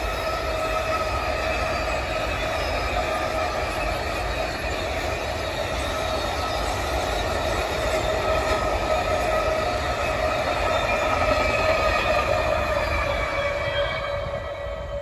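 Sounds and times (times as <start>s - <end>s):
freight train rumbling: 0.0s - 15.0s
wheels squealing: 0.0s - 15.0s.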